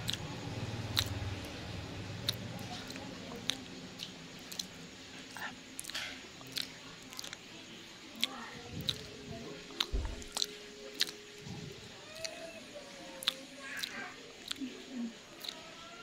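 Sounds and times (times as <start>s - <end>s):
wet mouth clicks: 0.0s - 0.2s, 0.9s - 1.2s, 2.2s - 7.4s, 8.2s - 9.1s, 9.7s - 11.2s, 13.2s - 14.7s, 15.4s - 15.6s
chewing sticky rice cakes: 0.0s - 16.0s.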